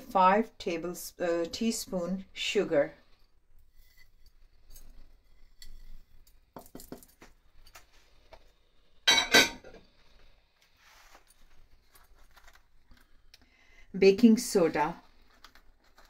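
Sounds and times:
kitchenware clinking on stone worktop: 9.0 - 9.8.

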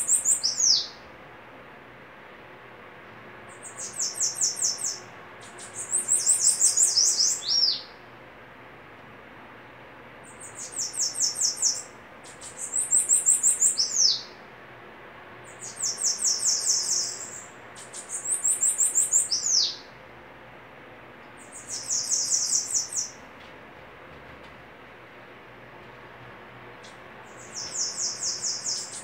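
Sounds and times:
bird trilling: 0.0 - 1.0, 3.5 - 7.9, 10.3 - 14.4, 15.5 - 19.9, 21.4 - 23.2, 27.2 - 29.0.

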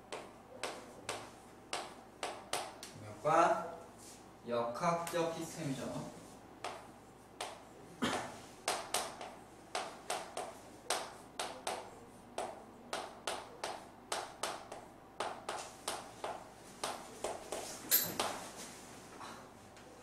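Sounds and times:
chalk tapping and scraping on blackboard: 0.1 - 2.9, 6.2 - 18.7.

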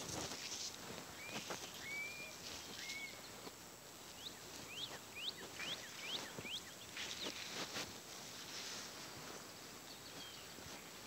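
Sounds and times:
birds chirping: 1.1 - 3.5, 4.1 - 7.4
bird whistle: 1.2 - 3.2.

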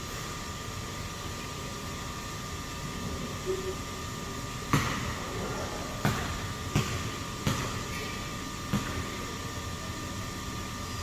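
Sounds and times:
steady background hum: 0.0 - 11.0
basketball bouncing on gym floor: 4.6 - 9.3.

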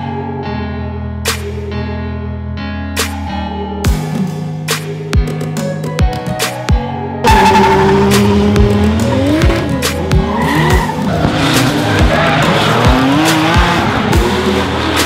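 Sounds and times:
background music with beat: 1.2 - 1.8, 2.8 - 15.0
car engines revving: 7.2 - 15.0
tyres screeching: 7.2 - 15.0.

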